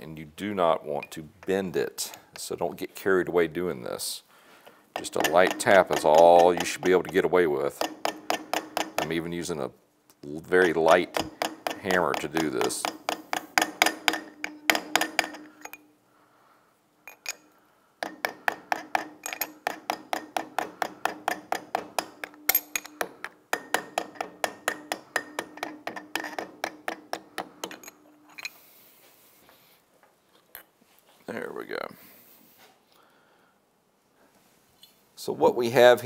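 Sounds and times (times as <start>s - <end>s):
hammer tapping on metal: 5.0s - 9.1s, 10.6s - 15.8s, 18.0s - 27.9s.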